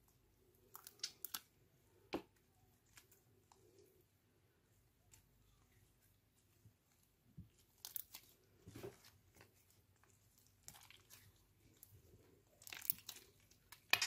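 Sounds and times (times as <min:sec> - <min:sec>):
slime crackling and popping: 0:12.5 - 0:14.0.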